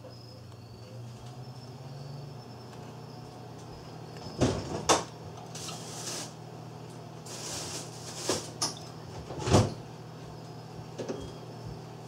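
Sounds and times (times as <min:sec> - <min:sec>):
leafy rustling: 0:07.2 - 0:08.6.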